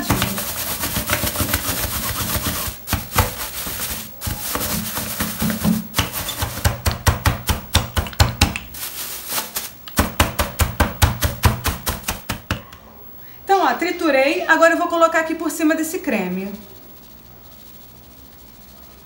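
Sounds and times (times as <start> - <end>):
rolling pin crushing wafer bars: 0.0 - 12.8.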